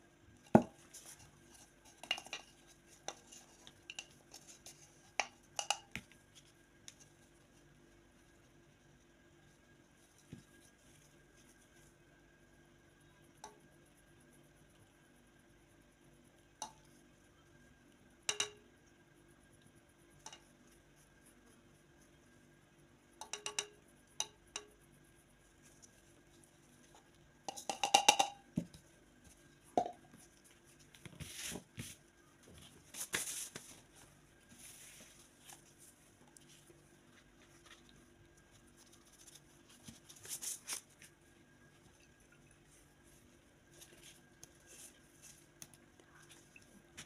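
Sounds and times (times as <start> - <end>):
clinks and knocks of kitchenware: 27.5 - 28.5.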